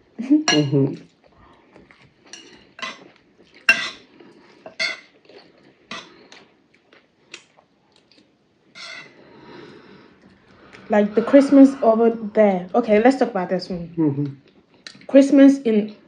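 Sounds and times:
spoons clinking on ceramic plates: 0:00.5 - 0:00.8, 0:02.3 - 0:03.0, 0:03.7 - 0:04.0, 0:04.7 - 0:05.1, 0:05.9 - 0:06.1, 0:08.8 - 0:09.2.

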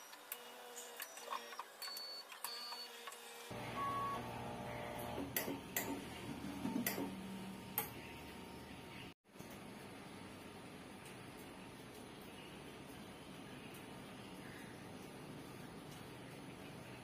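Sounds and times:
motor running steadily: 0:03.5 - 0:08.9.

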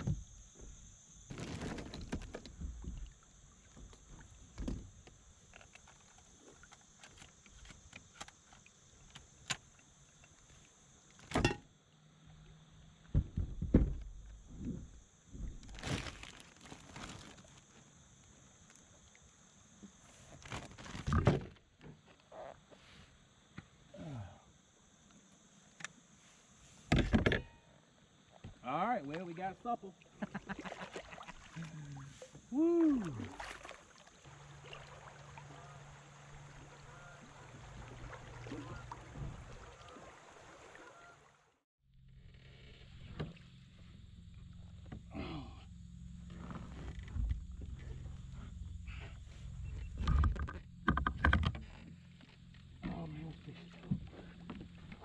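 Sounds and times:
water lapping around a kayak: 0:00.0 - 0:11.1, 0:28.0 - 0:41.6, 0:45.8 - 0:55.0
plastic bag crinkling: 0:15.7 - 0:17.6.

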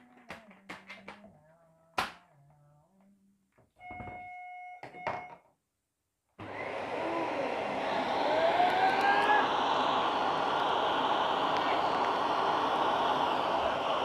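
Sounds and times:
vacuum cleaner motor: 0:06.4 - 0:14.0.

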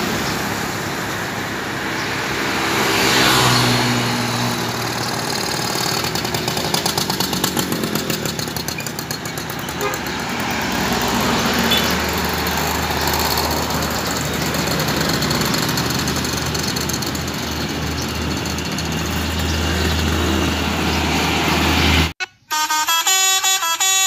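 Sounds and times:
cars passing: 0:00.0 - 0:22.2
motorcycle passing: 0:00.2 - 0:22.1
horn in short changing tones: 0:22.2 - 0:24.0.

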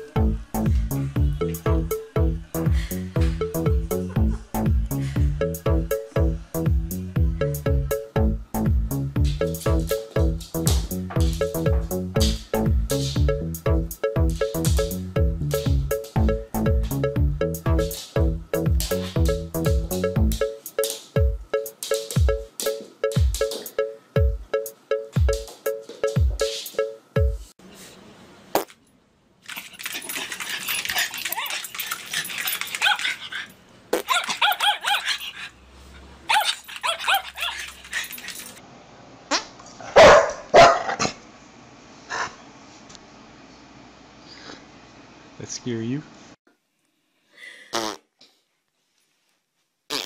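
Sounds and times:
electronic dance music: 0:00.0 - 0:27.4
kick drum beat: 0:00.2 - 0:20.5, 0:21.2 - 0:21.5, 0:22.2 - 0:24.5, 0:25.2 - 0:26.5, 0:27.2 - 0:27.5
dog barking: 0:34.0 - 0:35.2, 0:39.8 - 0:41.2.

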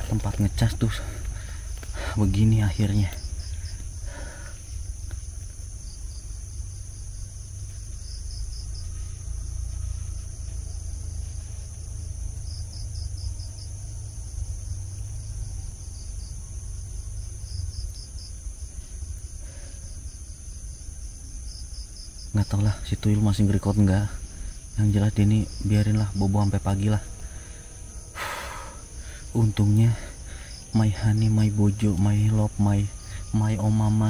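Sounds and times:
low rumble: 0:00.0 - 0:22.0
cricket chirps: 0:00.0 - 0:34.0
crickets buzzing: 0:00.0 - 0:34.0.

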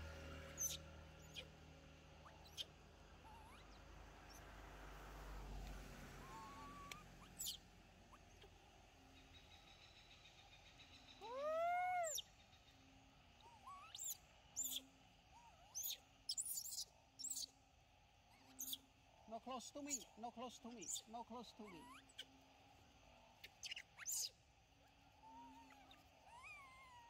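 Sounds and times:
monkey chirps and squeaks: 0:00.5 - 0:01.5, 0:02.2 - 0:04.4, 0:06.2 - 0:08.5, 0:10.8 - 0:12.3, 0:13.4 - 0:17.5, 0:18.3 - 0:18.8, 0:19.8 - 0:22.3, 0:23.4 - 0:24.4, 0:25.2 - 0:27.0
monkey coo call: 0:02.2 - 0:04.4, 0:06.2 - 0:09.4, 0:11.0 - 0:17.5, 0:20.7 - 0:22.4, 0:25.1 - 0:27.0.

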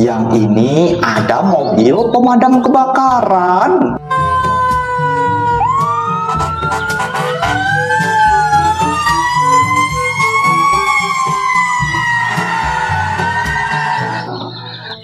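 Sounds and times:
background music with low beat: 0:00.0 - 0:15.0
fire engine siren wailing: 0:04.0 - 0:15.0.

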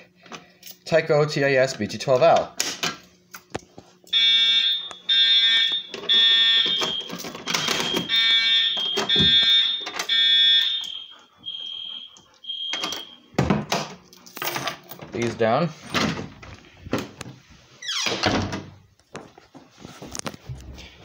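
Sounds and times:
fire alarm horn pulsing: 0:04.1 - 0:13.3.

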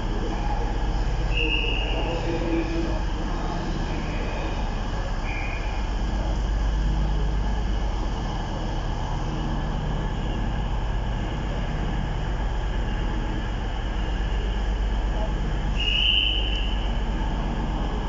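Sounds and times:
passenger train droning: 0:00.0 - 0:18.0.

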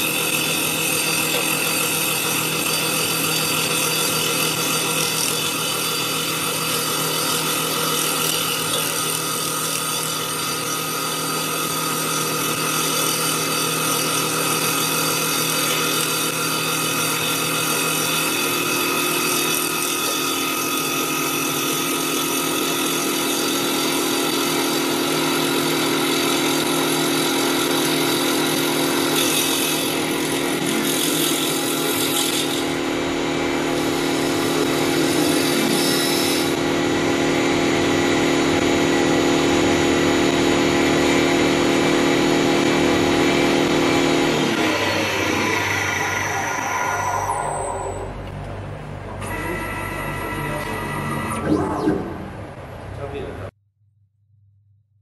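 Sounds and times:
lathe machine whine: 0:00.0 - 0:52.8
steady tone: 0:44.9 - 0:55.0.

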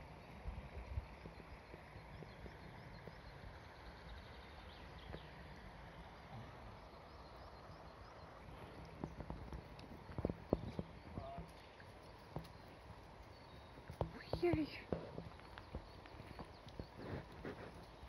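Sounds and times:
stream running over stones: 0:00.0 - 0:18.0
footsteps on stony ground: 0:09.0 - 0:18.0.

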